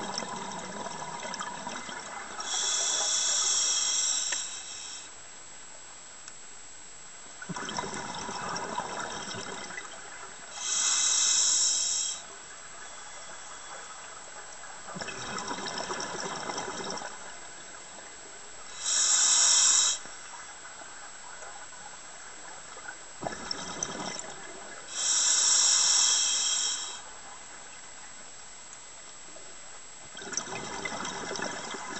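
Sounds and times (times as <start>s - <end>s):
air hissing through regulator: 2.4s - 5.2s, 10.5s - 12.4s, 18.7s - 20.1s, 24.9s - 27.1s
exhaled bubbles rushing: 7.5s - 10.0s, 14.9s - 17.2s.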